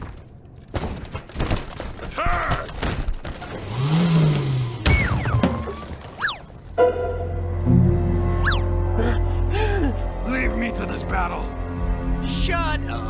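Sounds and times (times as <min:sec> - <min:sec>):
low rising and falling tone: 0:06.8 - 0:09.5
falling whistle-like tone: 0:08.3 - 0:08.7.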